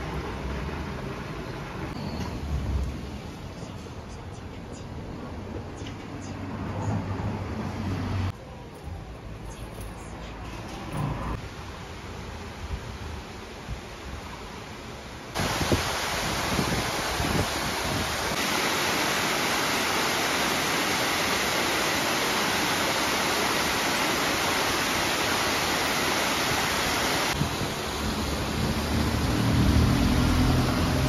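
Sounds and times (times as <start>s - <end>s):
creek water rushing over rocks: 15.3s - 31.0s.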